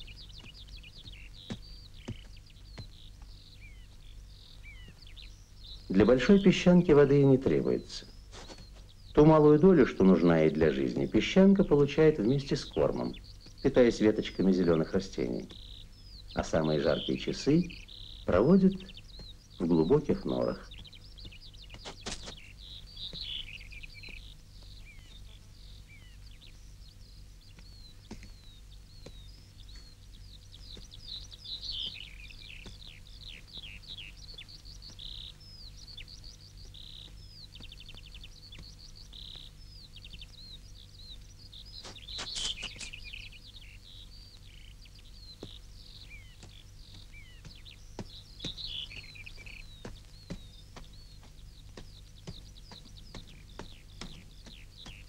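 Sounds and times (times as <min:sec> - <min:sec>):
low steady hum: 0:00.0 - 0:55.0
small birds chirping and trilling: 0:00.0 - 0:55.0.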